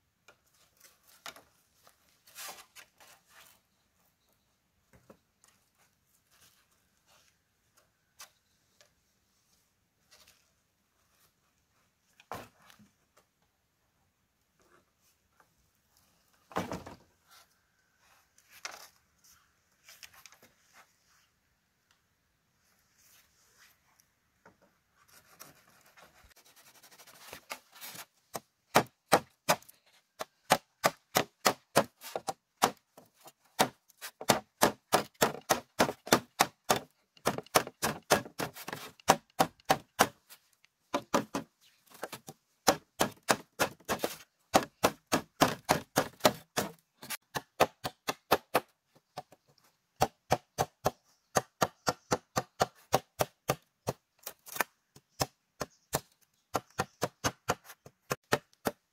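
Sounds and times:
hand tool striking bamboo: 28.3s - 32.8s, 33.6s - 40.3s, 40.9s - 49.3s.

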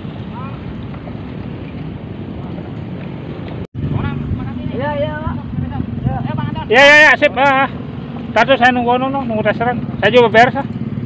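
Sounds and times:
wind noise on microphone: 0.0s - 6.8s.

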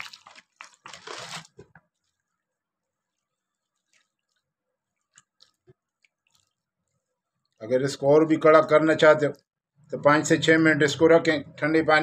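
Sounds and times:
wet clicks and squishes: 0.0s - 7.7s.

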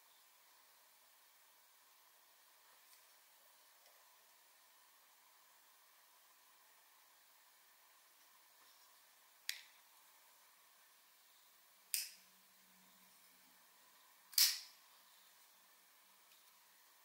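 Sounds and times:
folding knife clicks: 14.3s - 14.7s.

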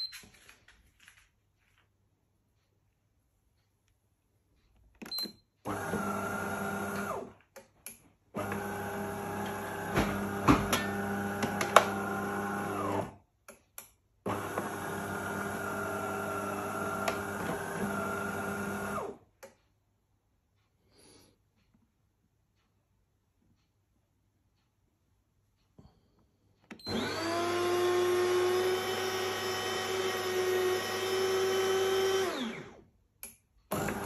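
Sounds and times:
coffee machine pump humming: 26.9s - 32.5s.

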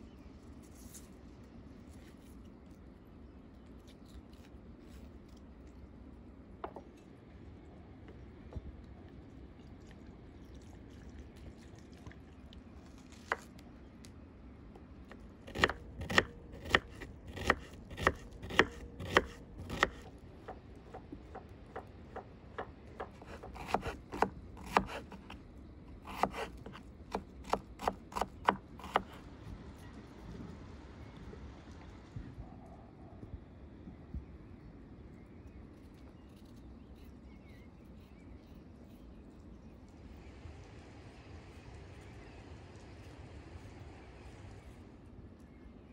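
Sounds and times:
knife chopping on wooden board: 15.5s - 25.4s, 26.0s - 29.2s.

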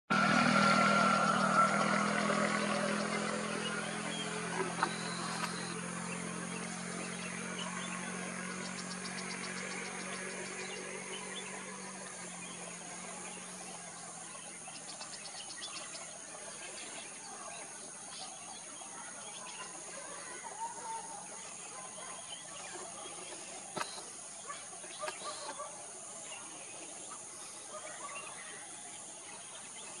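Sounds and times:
low hum: 0.1s - 18.2s
short chirps and ticks: 4.6s - 5.8s.

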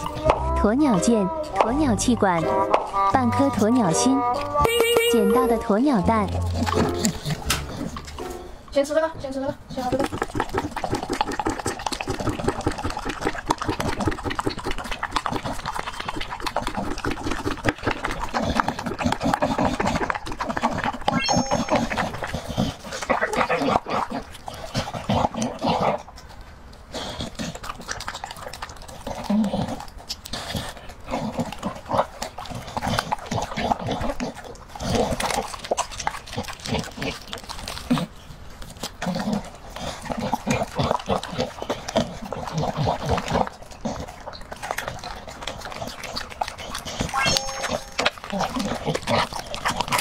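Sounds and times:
dog lapping from bowl: 5.7s - 8.3s, 9.3s - 26.2s, 27.0s - 50.0s.

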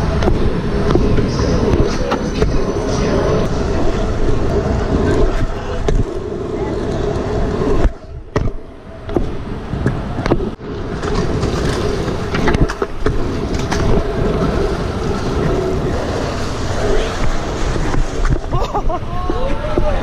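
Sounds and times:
scooter wheels rolling on asphalt: 0.0s - 20.0s
wind rumble on camera: 0.0s - 20.0s
scooter deck clacks: 7.7s - 14.6s.

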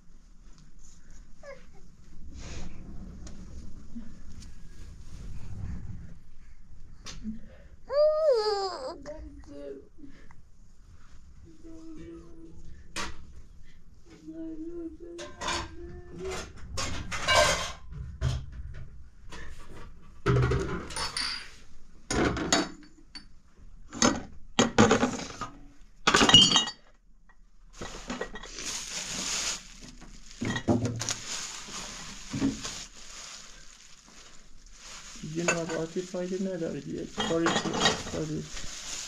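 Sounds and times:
dishes and pots clinking: 15.2s - 18.5s, 20.3s - 23.4s, 26.1s - 26.9s, 30.4s - 30.9s, 37.1s - 38.5s
steady hiss: 27.8s - 39.0s.

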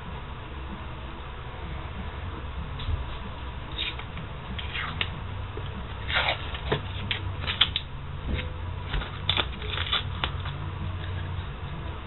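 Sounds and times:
tape peeling and crumpling: 6.0s - 11.3s.

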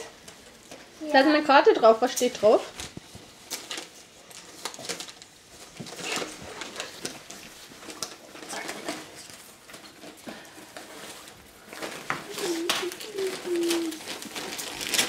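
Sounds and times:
wrapping paper rustling: 0.0s - 15.0s
children murmuring: 12.2s - 14.1s.

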